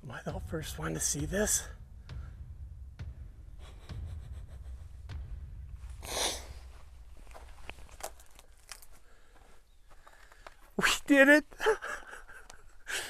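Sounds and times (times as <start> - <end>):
footsteps: 0.2 - 10.8.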